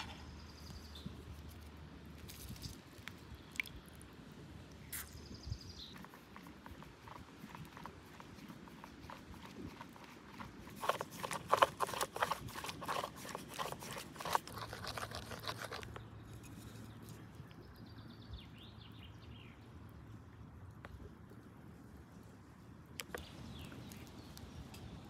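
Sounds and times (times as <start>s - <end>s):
faint stirring: 5.9s - 17.6s.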